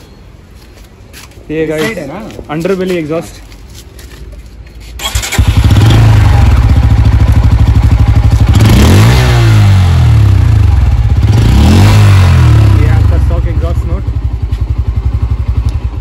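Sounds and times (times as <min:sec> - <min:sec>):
motorcycle engine running: 0:05.0 - 0:16.0.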